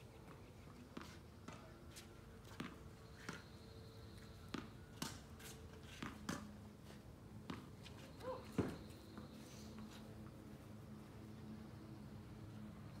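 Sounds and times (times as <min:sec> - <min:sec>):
tennis ball bounces: 0:04.4 - 0:06.6, 0:07.4 - 0:07.8.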